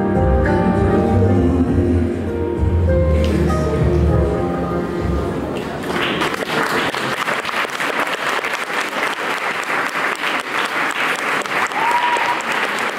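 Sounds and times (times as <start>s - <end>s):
audience applauding: 5.6s - 12.9s.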